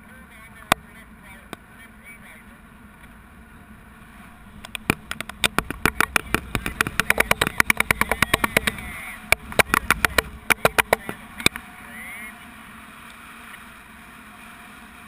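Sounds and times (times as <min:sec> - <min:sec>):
wind rushing past camera: 0:02.8 - 0:12.0
sharp flapping slaps: 0:04.7 - 0:11.6.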